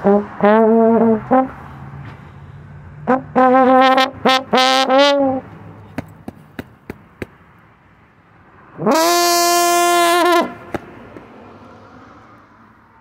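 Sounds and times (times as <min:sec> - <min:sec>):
slide trombone: 0:00.0 - 0:01.6, 0:03.0 - 0:05.4, 0:08.8 - 0:10.6.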